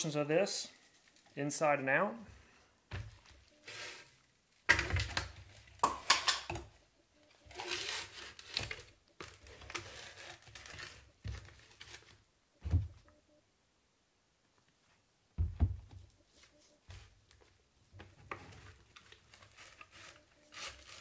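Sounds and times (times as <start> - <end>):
gloved hands crinkling and squishing: 0.6 - 1.5, 7.2 - 12.3, 18.5 - 21.0.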